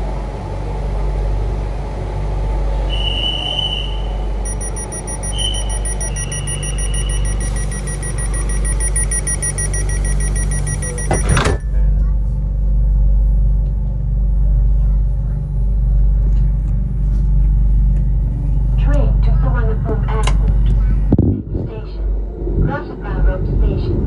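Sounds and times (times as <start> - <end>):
train carriage low hum: 0.0 - 24.0
two high warning tones: 2.9 - 11.6
fast repeated beeping: 4.5 - 11.6
sliding doors shutting thump: 11.0 - 11.6.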